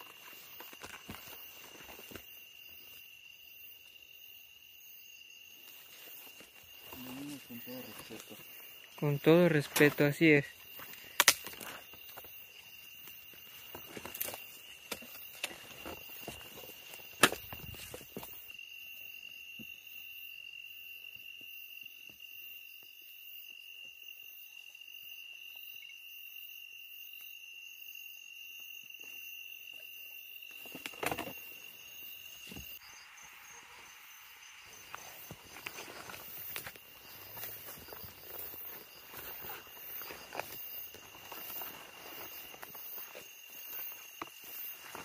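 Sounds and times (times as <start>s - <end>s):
insects trilling: 0.0s - 45.0s
footsteps in dry brush: 5.6s - 8.8s, 9.8s - 18.2s, 34.7s - 45.0s.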